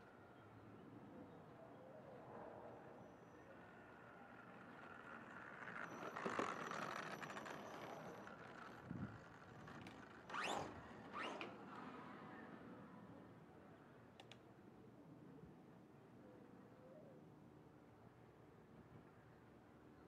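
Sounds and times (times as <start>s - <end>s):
rc car motor and tyre noise: 2.8s - 12.8s.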